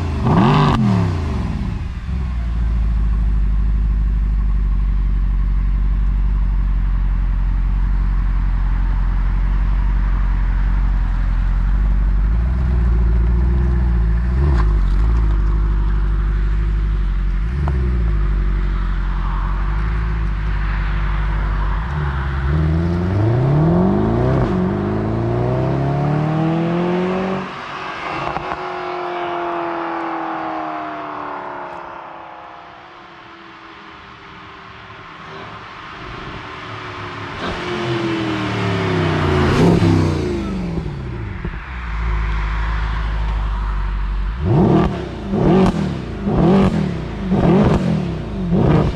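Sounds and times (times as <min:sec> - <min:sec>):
car accelerating through gears: 0:00.0 - 0:01.7, 0:21.8 - 0:33.2, 0:37.4 - 0:42.2, 0:44.4 - 0:48.9
car engine idling and revving: 0:00.0 - 0:48.9.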